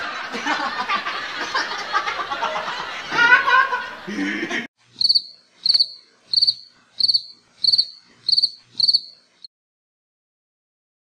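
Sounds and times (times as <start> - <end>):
boys laughing and snickering: 0.0 - 4.7
cricket chirping: 5.0 - 9.2.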